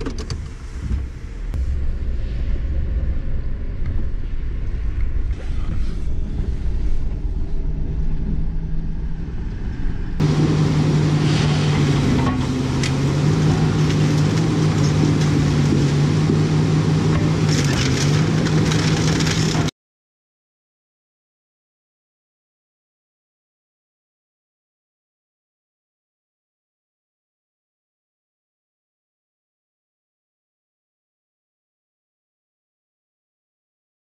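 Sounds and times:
low hum: 0.4s - 19.7s
vehicle engine running: 0.5s - 19.7s.

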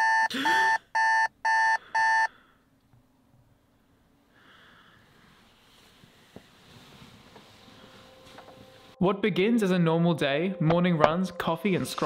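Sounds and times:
alarm clock beeping: 0.0s - 2.3s.

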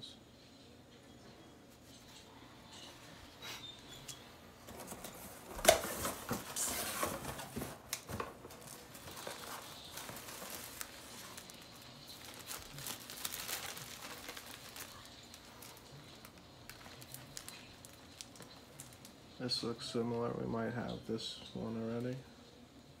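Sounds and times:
cardboard box rustling: 4.6s - 15.8s
plastic sleeves crinkling: 4.6s - 20.4s.

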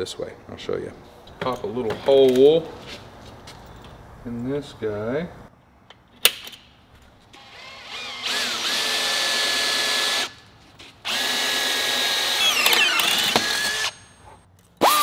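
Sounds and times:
cordless drill drilling metal: 7.4s - 10.4s, 11.0s - 14.0s, 14.8s - 15.0s.

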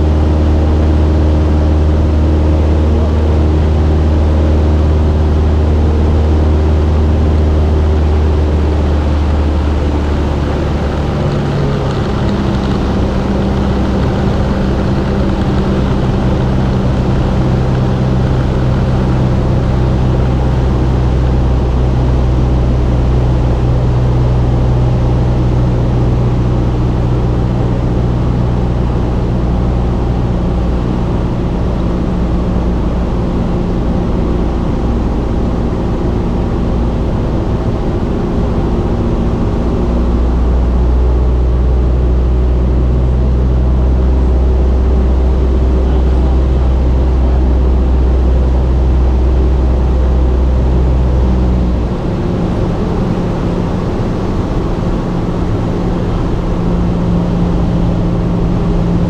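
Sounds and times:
propeller engine droning in cabin: 0.0s - 59.0s.

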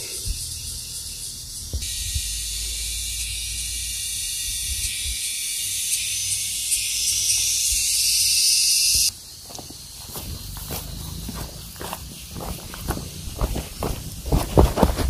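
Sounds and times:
insect chorus buzzing: 0.0s - 15.0s
footsteps on gravel: 9.4s - 15.0s.

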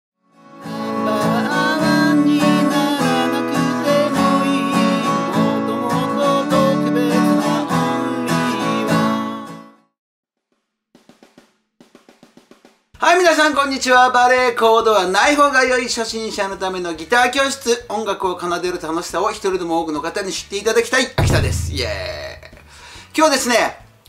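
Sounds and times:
acoustic guitar strumming chords: 0.4s - 9.7s, 21.2s - 22.7s.

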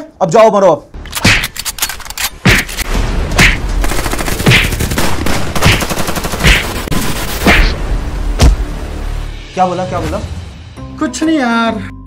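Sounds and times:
rapid automatic gunfire: 3.8s - 7.7s.

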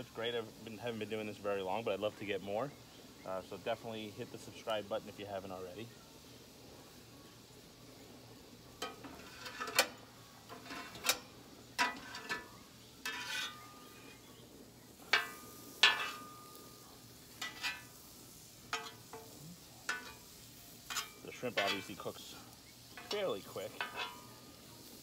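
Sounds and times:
shrimp sizzling: 0.0s - 25.0s
metal spatula scraping griddle: 8.7s - 14.4s, 15.0s - 25.0s.

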